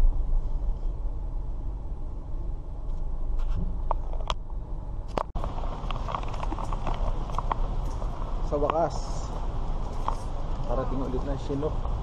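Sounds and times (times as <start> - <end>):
car engine and road rumble: 0.0 - 12.0.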